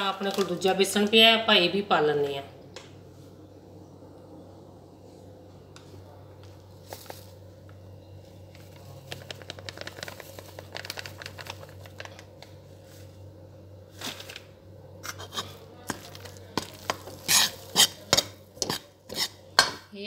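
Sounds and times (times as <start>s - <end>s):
plastic packet crinkling: 6.8s - 7.4s, 8.5s - 12.6s.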